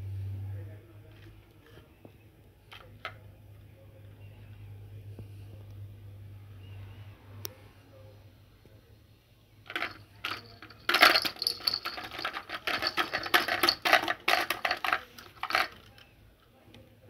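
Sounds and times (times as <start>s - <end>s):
plastic toys rattling: 9.7s - 16.6s.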